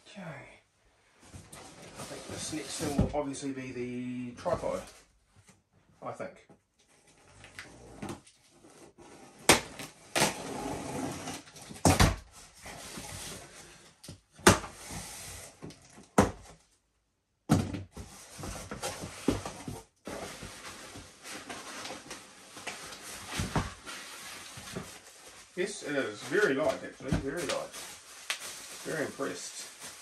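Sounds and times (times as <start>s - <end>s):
cardboard scraping and rustling: 18.0s - 30.0s.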